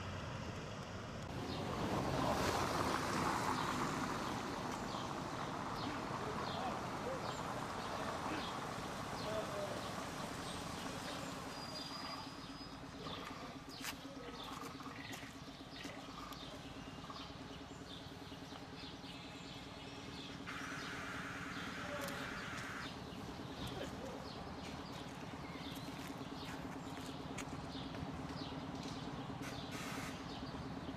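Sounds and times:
bus engine idling hum: 0.0s - 30.9s
birds chirping: 2.9s - 30.9s
air hiss: 29.7s - 30.2s.

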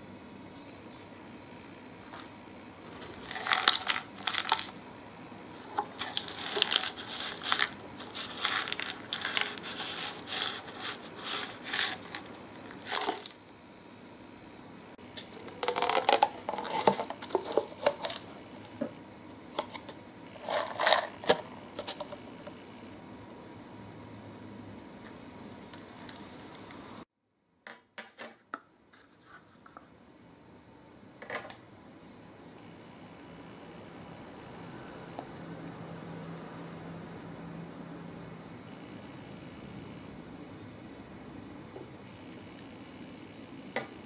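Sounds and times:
packaging crinkling and tearing: 2.9s - 4.7s, 5.8s - 13.3s, 15.3s - 18.2s
lid peeled back: 5.6s - 13.3s, 15.2s - 18.3s.

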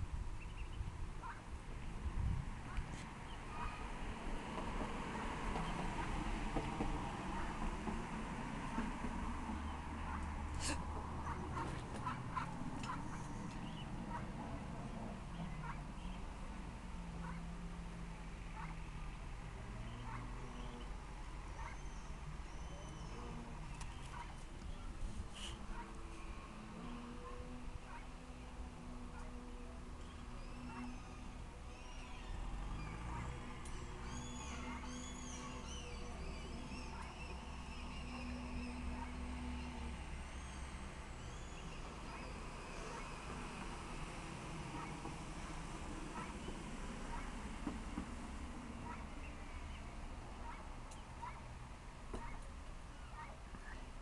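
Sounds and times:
low outdoor rumble: 0.0s - 54.0s
ducks calling: 8.6s - 16.4s, 17.1s - 17.5s, 18.5s - 18.8s, 19.7s - 47.6s, 48.8s - 49.8s, 52.1s - 53.8s.

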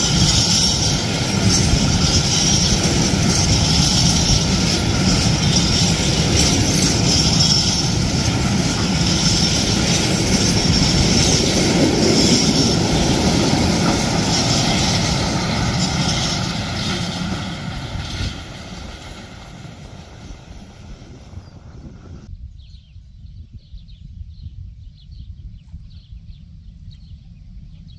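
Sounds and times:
train wheels rumbling and clattering: 0.0s - 22.3s.

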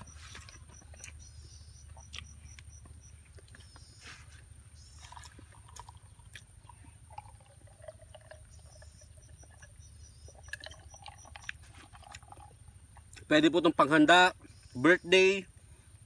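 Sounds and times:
faint eating sounds: 0.0s - 13.5s
high insect chirps: 0.0s - 16.0s
sipping iced drink: 5.0s - 13.2s.

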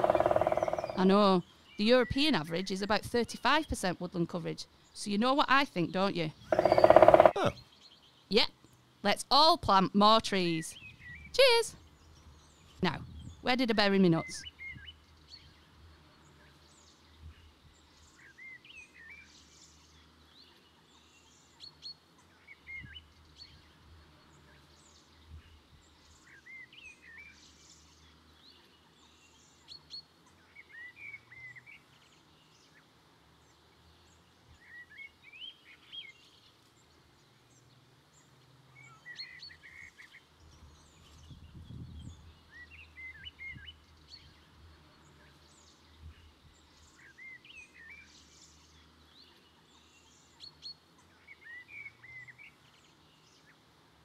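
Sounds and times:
birds chirping and trilling: 0.0s - 4.0s, 5.8s - 8.3s, 10.4s - 53.8s.

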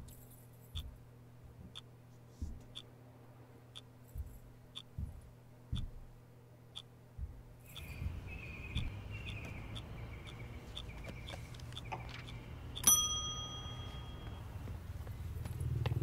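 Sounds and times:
faint regular clicks: 0.0s - 1.0s, 3.7s - 6.1s, 6.7s - 12.9s
steady low hum: 0.0s - 16.0s
bright bell ding: 12.8s - 14.5s.

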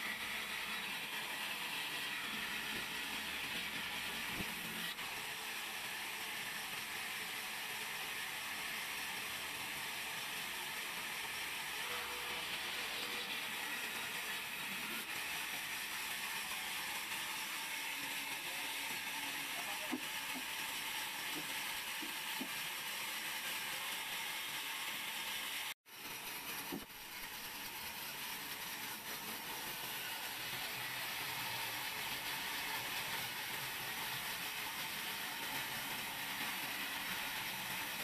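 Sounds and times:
band saw cutting wood: 0.0s - 25.7s.

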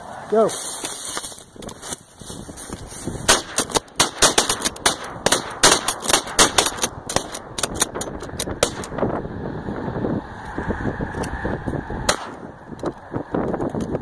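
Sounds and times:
shotgun blasts: 3.2s - 7.5s, 8.6s - 9.0s, 12.1s - 12.4s.

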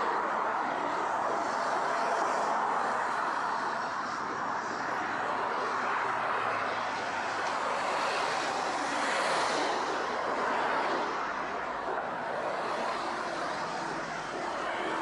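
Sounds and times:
road traffic rushing: 0.0s - 15.0s.

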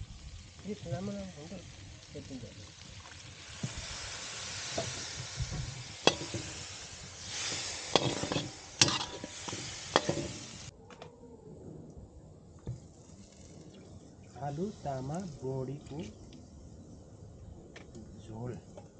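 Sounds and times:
food sizzling in a pan: 0.0s - 10.7s
spoon scraping against a pan: 6.0s - 10.7s.

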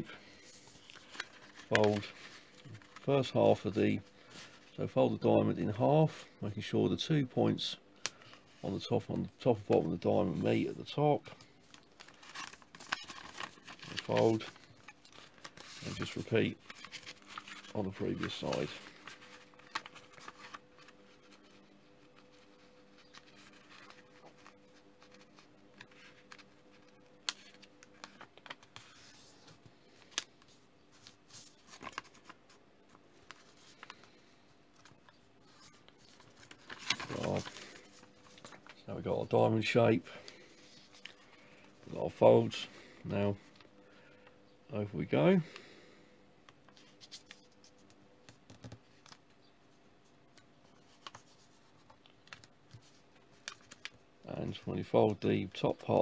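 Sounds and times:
faint steady hum: 0.0s - 56.0s
paper rustling and crackling: 0.2s - 4.8s, 11.3s - 38.9s, 46.7s - 49.2s, 50.6s - 55.1s.

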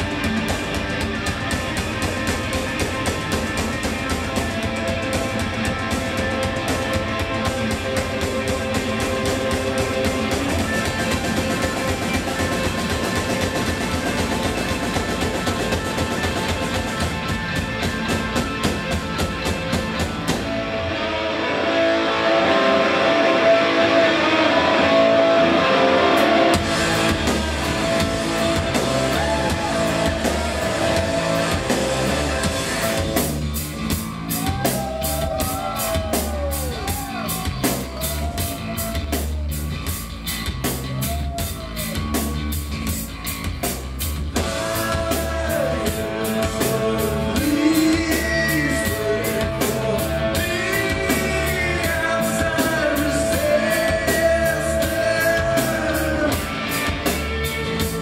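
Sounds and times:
sliding guitar notes: 0.0s - 43.6s
rock band playing live: 0.0s - 58.0s.

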